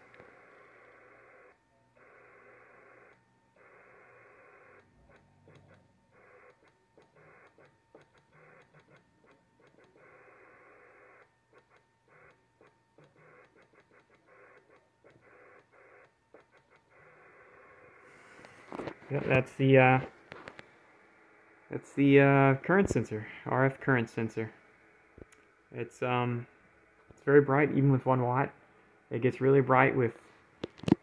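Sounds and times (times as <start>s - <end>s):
steady radio tone: 8.3s - 11.3s, 16.8s - 20.6s
radio speaker hiss: 17.0s - 20.8s, 21.6s - 31.0s.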